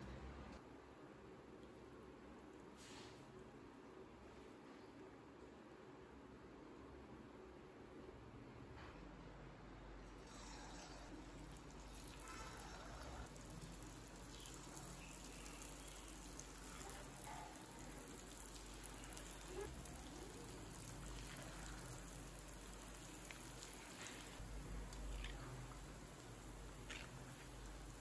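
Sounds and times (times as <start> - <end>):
oil sizzling: 10.7 - 28.0
oil crackling: 11.3 - 28.0.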